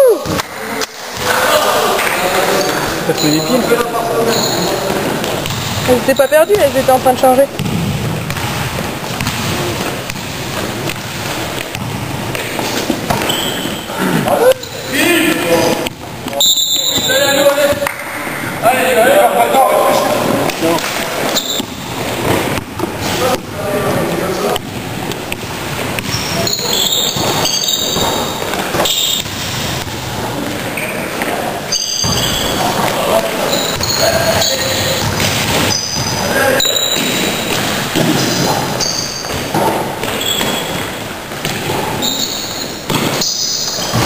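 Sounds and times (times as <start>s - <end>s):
sports hall noise: 0.0s - 44.0s
sneakers squeaking: 2.4s - 18.0s, 19.7s - 44.0s
ball and feet on wooden court: 4.5s - 18.0s, 19.8s - 44.0s
basketball dribbling on wooden floor: 5.2s - 13.5s, 24.6s - 26.4s, 33.8s - 36.2s.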